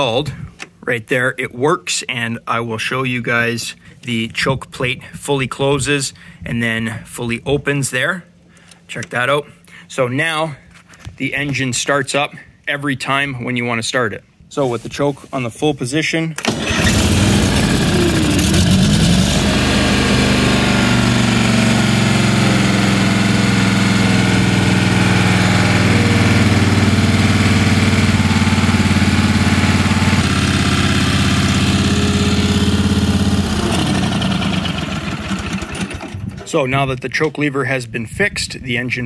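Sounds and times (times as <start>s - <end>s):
engine running: 16.4s - 36.5s.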